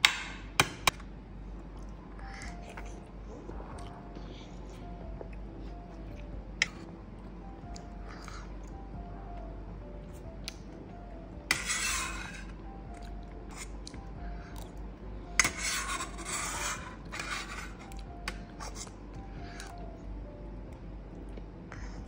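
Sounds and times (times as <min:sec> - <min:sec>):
metal spoon scraping plate: 0:11.5 - 0:12.5, 0:15.4 - 0:18.9.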